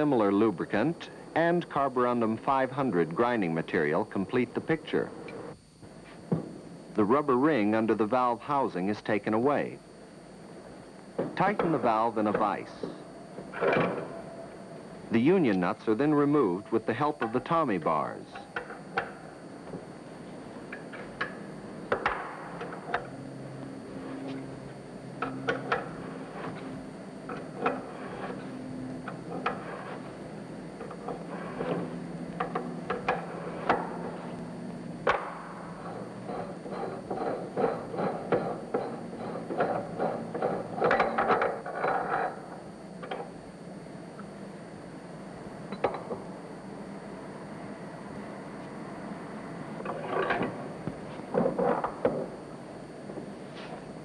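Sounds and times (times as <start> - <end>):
metal threads scraping: 35.8 - 41.0.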